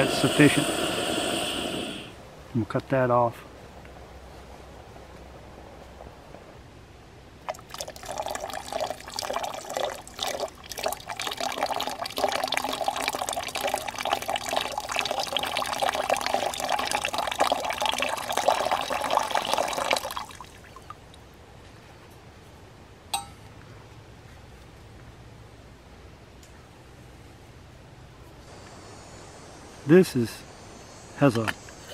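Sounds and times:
water pouring into a metal pot: 7.5s - 21.0s.

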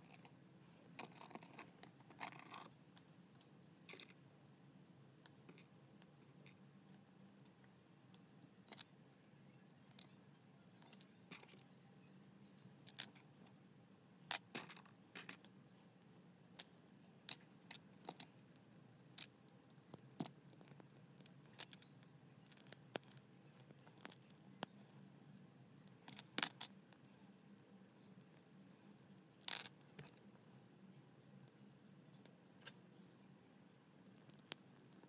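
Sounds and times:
plastic bricks clicking together: 29.4s - 30.1s.

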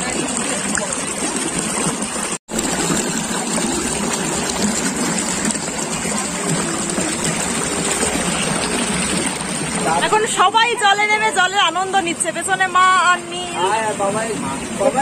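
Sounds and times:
water trickling over rocks: 0.0s - 11.8s.

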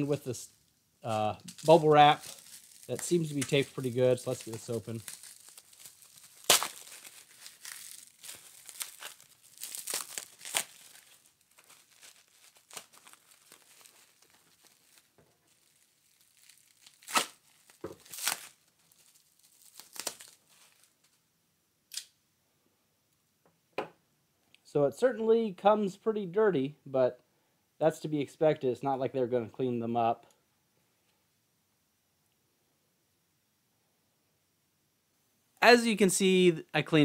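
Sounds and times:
bubble wrap rustling and tearing: 0.0s - 21.2s
short sharp rips: 1.4s - 20.9s.

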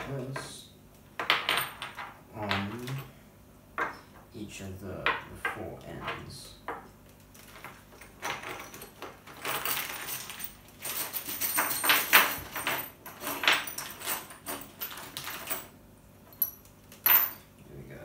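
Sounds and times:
metal screws and nuts clinking: 7.4s - 15.7s, 16.3s - 17.5s.

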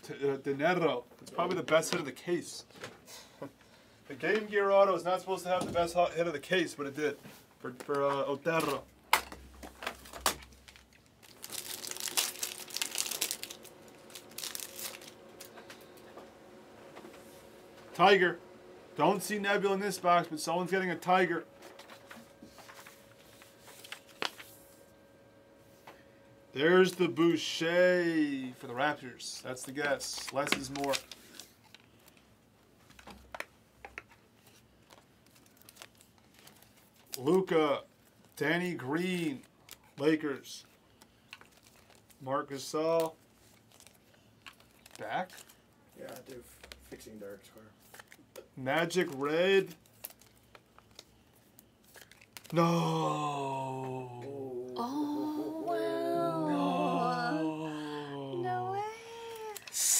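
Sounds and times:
foil wrapper tearing and crinkling: 10.5s - 15.5s, 30.6s - 31.5s, 34.9s - 37.4s, 41.3s - 42.2s, 43.4s - 46.8s, 49.0s - 52.6s
trading cards clicking and rustling: 29.7s - 31.7s, 47.8s - 48.2s.

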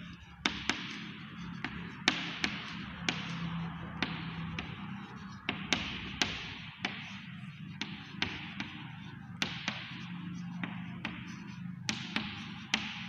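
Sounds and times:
chalk scratching on chalkboard: 0.0s - 13.0s
chalk tapping on chalkboard: 0.0s - 13.0s.

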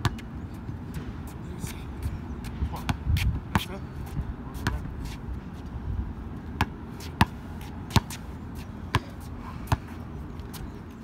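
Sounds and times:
basketball bouncing on hard court: 2.8s - 3.7s.

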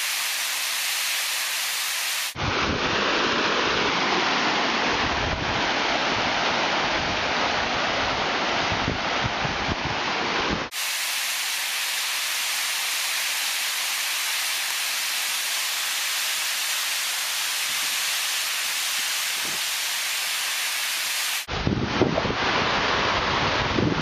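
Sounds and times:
waterfall rushing: 0.0s - 6.9s, 10.7s - 21.5s
wind buffeting microphone: 21.5s - 24.0s.

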